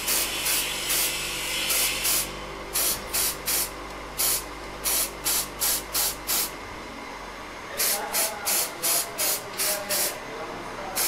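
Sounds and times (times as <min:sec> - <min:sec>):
aerosol can hissing bursts: 0:01.7 - 0:06.5, 0:07.8 - 0:10.2.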